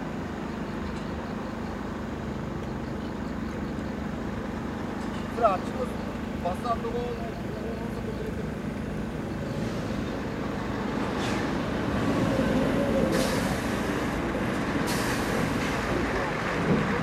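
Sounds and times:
truck diesel engine rumble: 0.0s - 17.0s
short air hisses: 13.1s - 14.0s, 14.8s - 15.6s.

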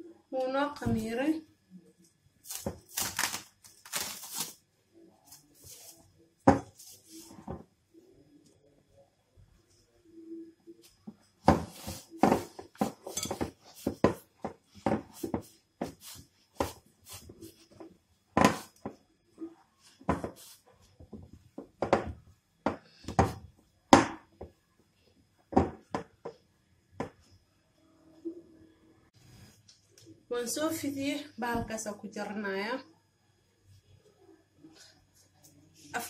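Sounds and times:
hands kneading dough: 10.8s - 24.6s.

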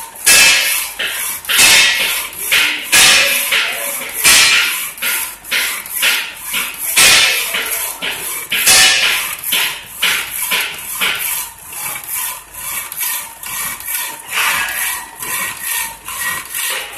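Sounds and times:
power saw cutting steel: 0.0s - 16.9s.

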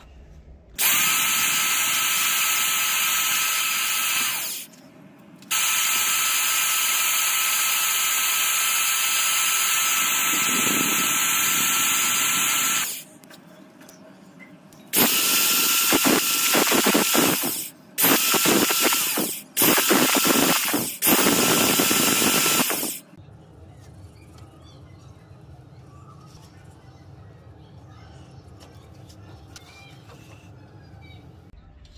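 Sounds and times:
electric drill motor whine: 0.8s - 4.7s, 5.5s - 13.0s, 15.0s - 23.1s.

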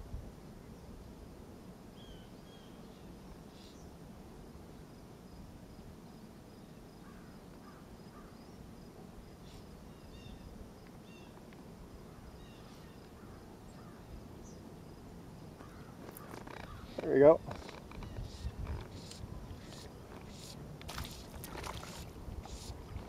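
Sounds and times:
low background hiss: 0.0s - 23.0s
bird calls and chirps: 15.6s - 20.6s.

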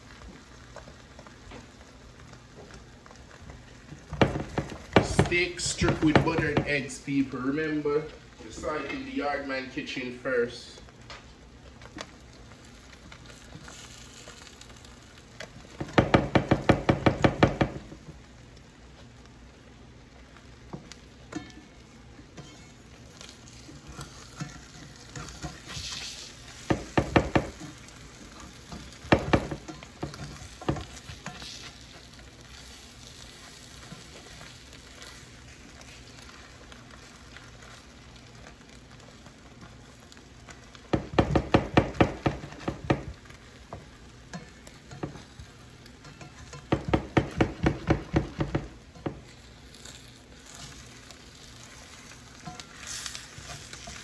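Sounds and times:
food sizzling in a skillet: 0.0s - 54.0s
spatula tapping and scraping a pan: 2.6s - 6.8s, 13.2s - 18.2s, 20.7s - 54.0s.

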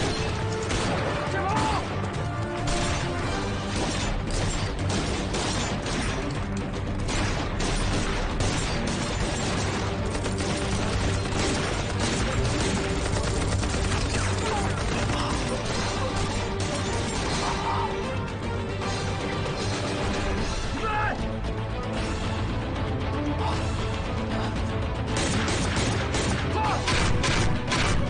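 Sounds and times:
gunfire volleys: 0.0s - 2.0s, 2.6s - 17.6s, 25.1s - 28.0s
dramatic film score: 0.0s - 28.0s.

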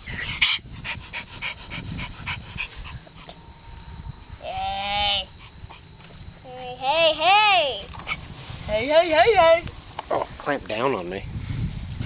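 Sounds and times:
insect trill: 0.0s - 12.0s
dog panting: 0.2s - 3.4s.

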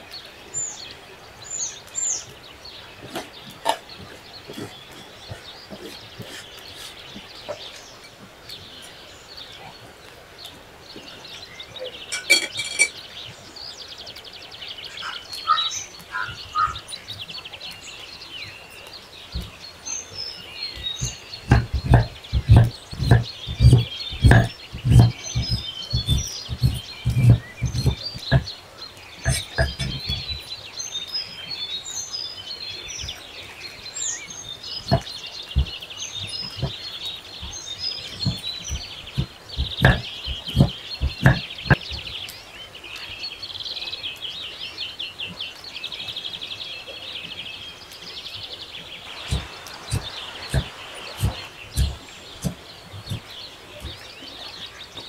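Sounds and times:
birds chirping: 0.0s - 55.0s
knife chopping on wooden board: 21.0s - 28.5s, 38.2s - 41.8s, 49.2s - 54.0s.

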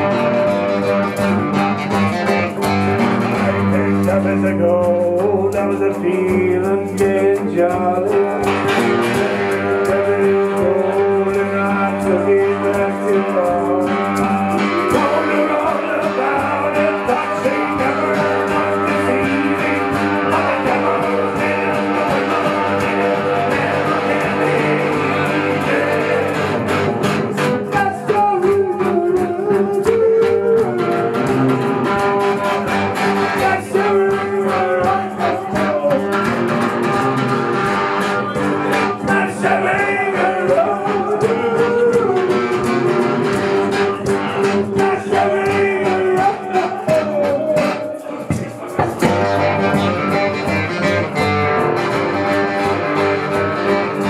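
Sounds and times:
acoustic guitar strumming: 0.0s - 54.0s
electric guitar melody: 0.0s - 54.0s.

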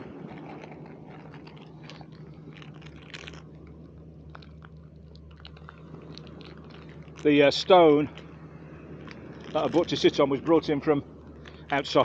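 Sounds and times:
person chewing biscuit: 0.0s - 7.3s.

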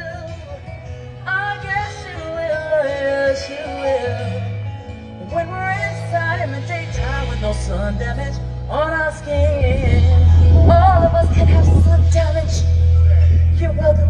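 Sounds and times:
live band playing: 0.0s - 14.0s
sustained bass notes: 6.0s - 14.0s.

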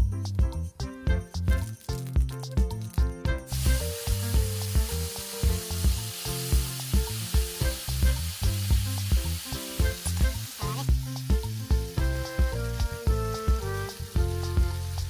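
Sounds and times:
background music with steady beat: 0.0s - 15.0s
slices sizzling in hot oil: 3.5s - 15.0s.

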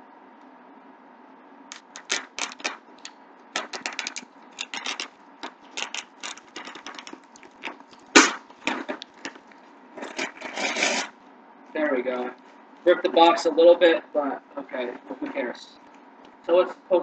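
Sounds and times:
tearing tape and cardboard: 1.7s - 2.8s, 3.6s - 9.1s, 10.0s - 11.2s.

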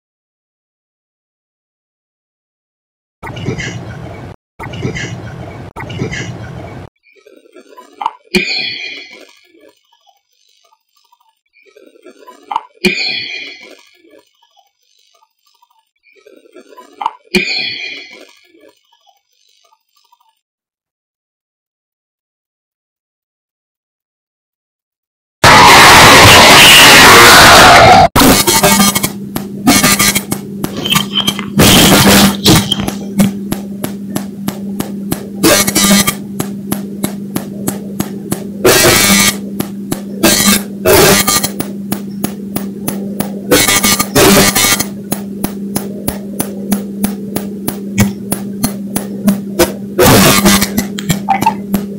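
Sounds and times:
steady hum: 26.0s - 51.9s
sharp evenly spaced clicks: 28.7s - 30.8s, 32.8s - 49.6s.

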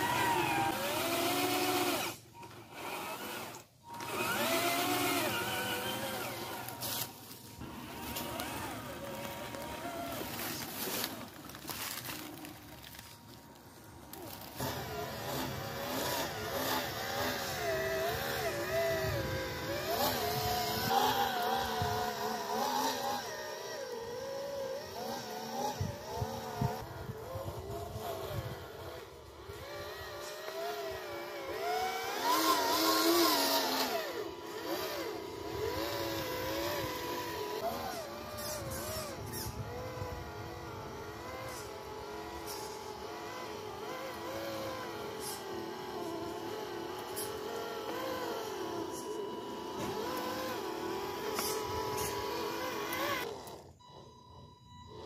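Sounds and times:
rc truck motor whining: 0.0s - 55.0s.

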